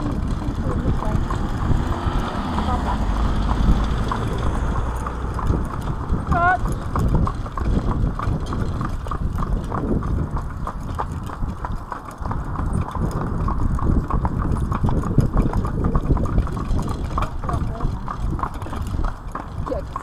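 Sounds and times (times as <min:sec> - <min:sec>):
low rumble: 0:00.0 - 0:19.0
horse hooves on tarmac: 0:00.0 - 0:20.0.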